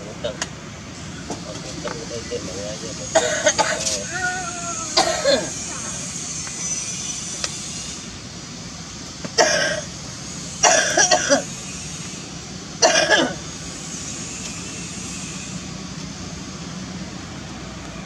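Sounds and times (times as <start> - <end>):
steady low hum: 0.0 - 18.0
person coughing: 3.2 - 3.9, 5.0 - 5.5, 9.4 - 9.8, 10.6 - 11.4, 12.8 - 13.4.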